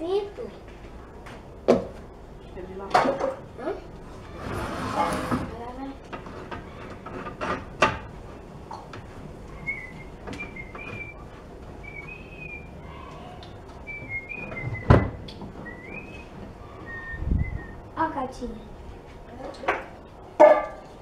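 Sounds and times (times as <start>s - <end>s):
high whistled chirps: 9.6s - 11.2s, 11.8s - 12.8s, 13.8s - 17.9s.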